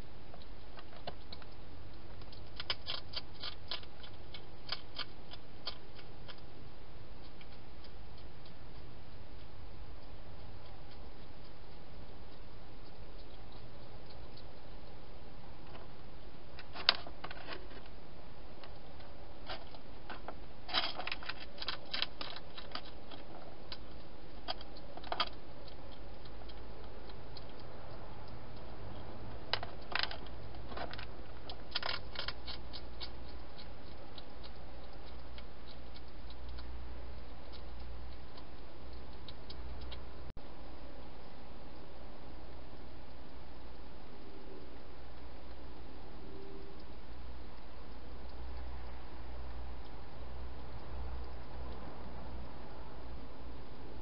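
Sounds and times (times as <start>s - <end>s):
hedgehog eating clicks: 0.3s - 15.9s, 18.6s - 46.0s.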